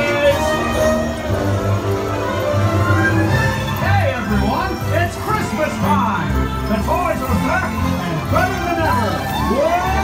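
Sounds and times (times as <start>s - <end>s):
parade music over loudspeakers: 0.0s - 10.0s.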